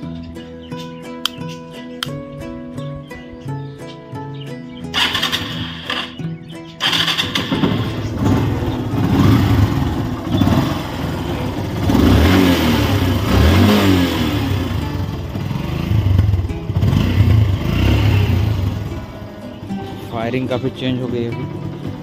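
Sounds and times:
motorcycle engine revving: 4.9 - 22.0.

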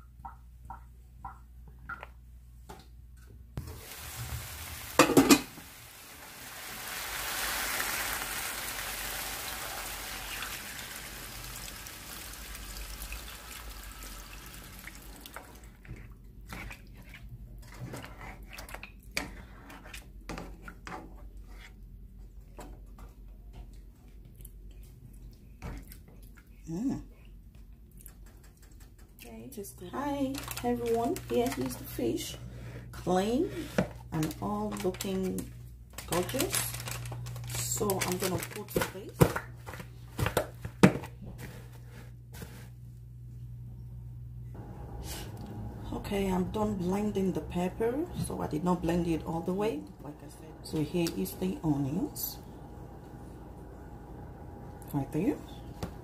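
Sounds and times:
water pouring into a pot: 3.6 - 15.8.

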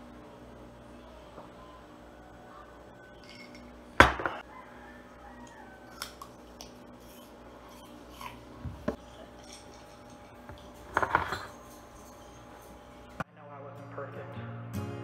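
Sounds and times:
glass and cutlery clinking: 3.2 - 4.4, 8.9 - 13.0
glass clunk on table: 4.0 - 4.4.

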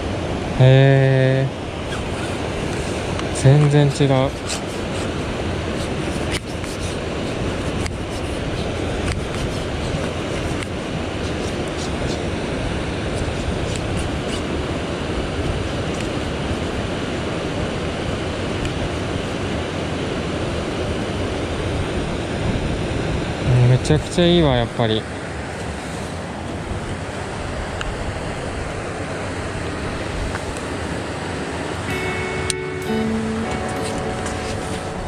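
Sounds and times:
stream water rushing: 0.0 - 23.6, 24.2 - 35.0.

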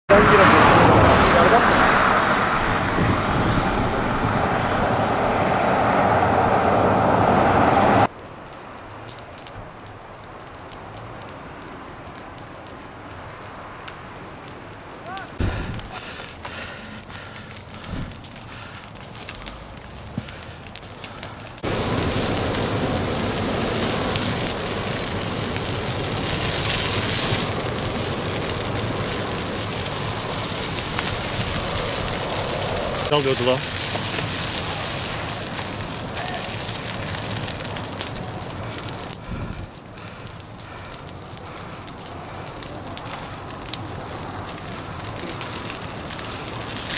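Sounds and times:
loud steady rushing noise: 0.1 - 8.1, 21.3 - 33.7
burning grass crackling and popping: 7.9 - 46.9.

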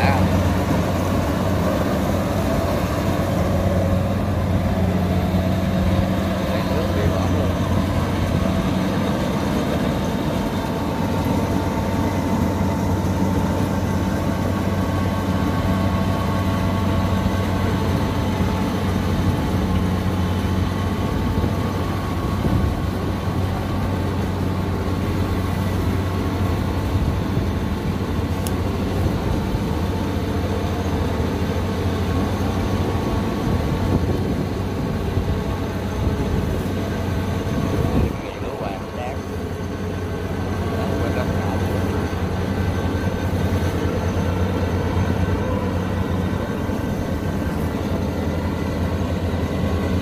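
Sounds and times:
diesel engine droning: 0.0 - 50.0.

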